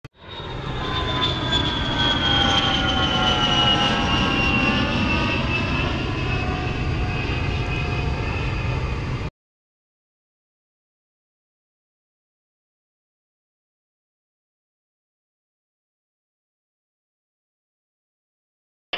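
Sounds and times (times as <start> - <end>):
jet engine rumble and whine: 0.1 - 9.3.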